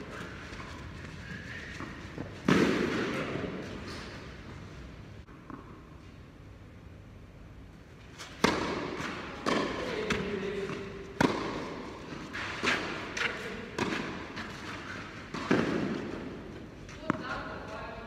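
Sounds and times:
tennis ball bouncing: 0:01.8 - 0:03.6, 0:08.3 - 0:17.6
tennis ball hit by rackets: 0:01.8 - 0:03.6, 0:08.3 - 0:14.5, 0:15.3 - 0:16.4.

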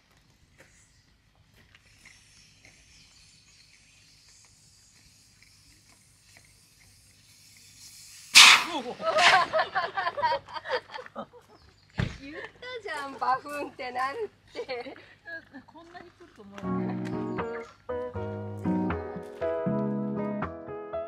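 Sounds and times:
faint hiss: 0:00.5 - 0:10.1
air bursting from valve: 0:01.8 - 0:09.6.

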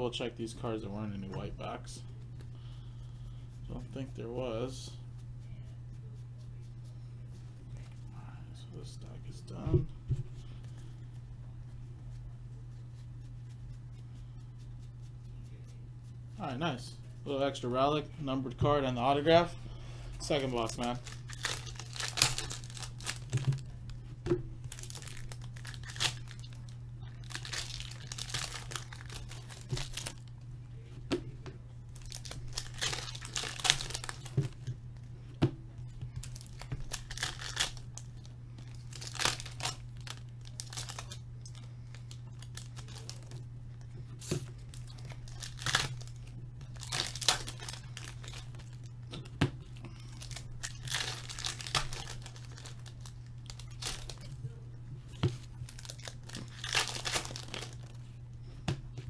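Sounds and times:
wrappers tearing and crinkling: 0:20.3 - 0:23.7, 0:24.7 - 0:30.3, 0:31.9 - 0:34.7, 0:36.2 - 0:43.4, 0:44.2 - 0:48.9, 0:50.0 - 0:54.4, 0:55.2 - 0:58.0.

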